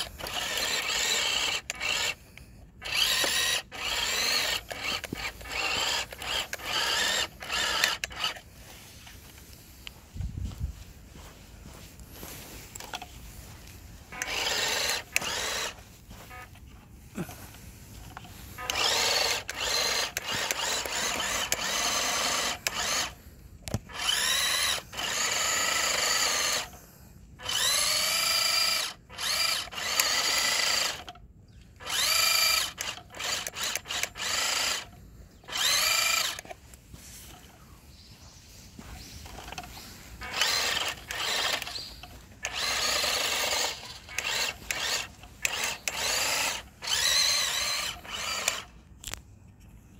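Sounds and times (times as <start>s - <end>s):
electric motor whining: 0.0s - 8.7s, 14.0s - 16.6s, 18.1s - 26.8s, 27.4s - 31.1s, 31.8s - 36.5s, 38.4s - 48.8s.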